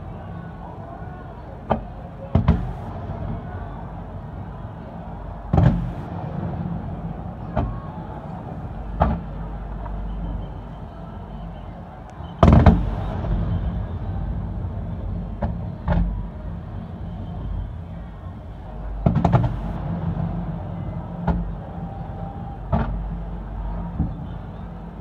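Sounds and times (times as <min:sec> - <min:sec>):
low background noise: 0:00.0 - 0:25.0
firework booms: 0:02.3 - 0:03.9, 0:05.0 - 0:09.5, 0:12.4 - 0:16.4, 0:18.9 - 0:21.8.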